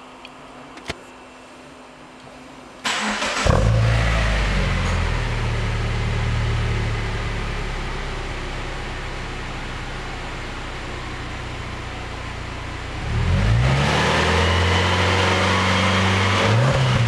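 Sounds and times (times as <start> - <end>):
car engine idling: 2.9 - 13.1.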